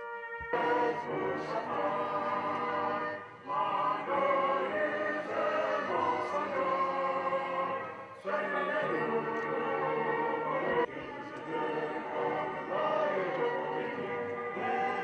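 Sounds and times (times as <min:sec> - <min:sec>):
crowd singing an anthem: 0:00.4 - 0:15.0.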